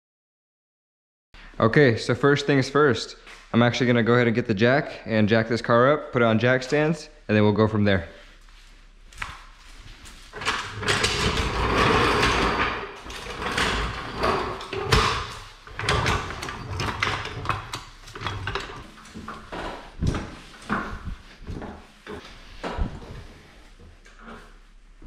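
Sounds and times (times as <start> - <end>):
metal clanks and knocks: 10.3 - 23.0
floor jack wheels scraping on concrete: 10.3 - 23.3.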